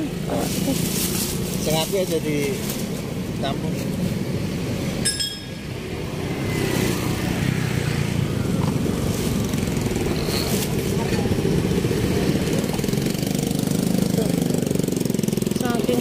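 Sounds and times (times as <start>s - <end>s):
small engine idling: 6.9s - 16.0s.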